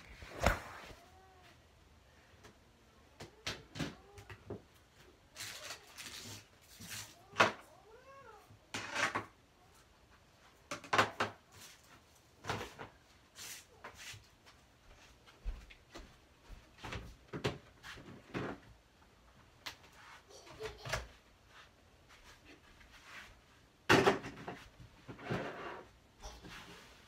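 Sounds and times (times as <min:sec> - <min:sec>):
rustling: 0:04.9 - 0:07.3.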